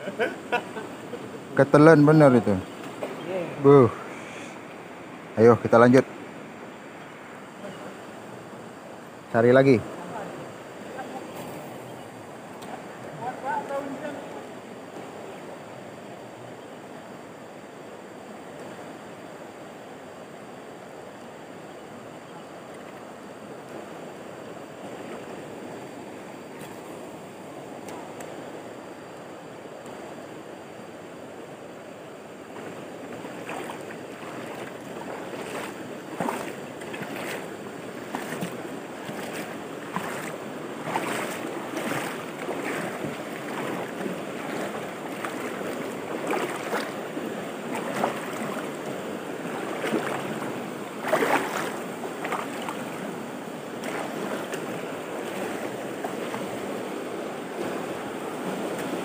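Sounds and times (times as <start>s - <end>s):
water rushing over rocks: 32.3s - 59.0s.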